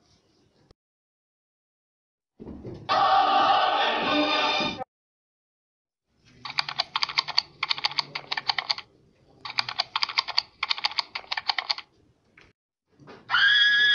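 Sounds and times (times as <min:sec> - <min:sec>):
typing on computer keyboard: 0:06.4 - 0:08.9, 0:09.5 - 0:11.9.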